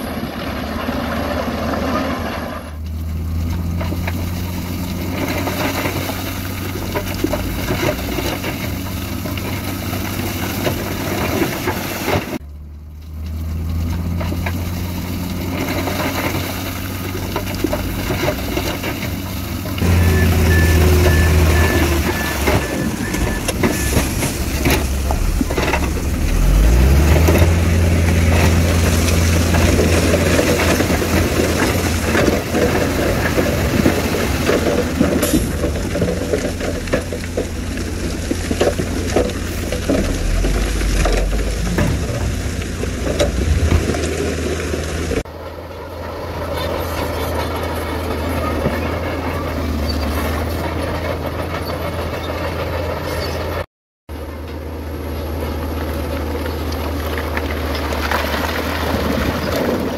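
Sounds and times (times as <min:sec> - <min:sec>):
truck engine revving: 0:00.0 - 0:53.7
diesel truck engines running: 0:00.0 - 0:59.9
high beeps: 0:19.8 - 0:24.1.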